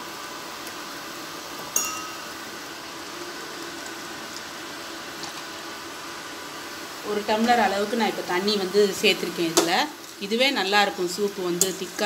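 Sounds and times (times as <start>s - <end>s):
sharp metallic clink: 1.8s - 2.3s.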